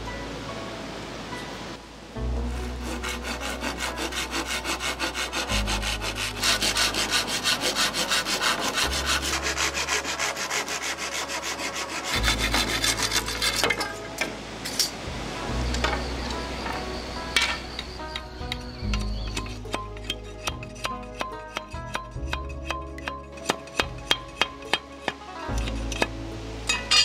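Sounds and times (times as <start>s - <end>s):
hand saw cutting wood: 2.5s - 14.0s, 19.0s - 26.1s.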